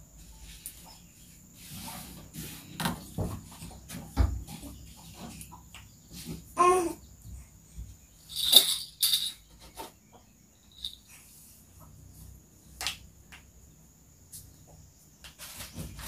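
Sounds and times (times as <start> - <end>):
high insect drone: 10.2 - 12.4.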